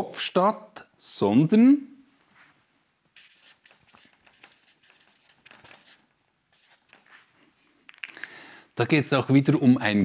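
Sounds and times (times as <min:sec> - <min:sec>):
marker scratching on paper: 0:03.2 - 0:07.3.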